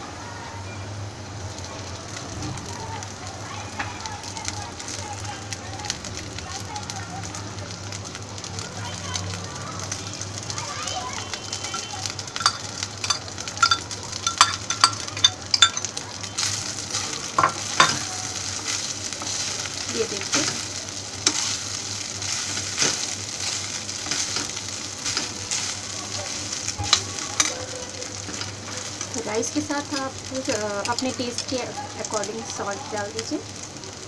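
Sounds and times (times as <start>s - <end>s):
food sizzling in wok: 0.0s - 34.0s
utensils knocking on wok: 11.7s - 16.0s, 17.4s - 18.1s.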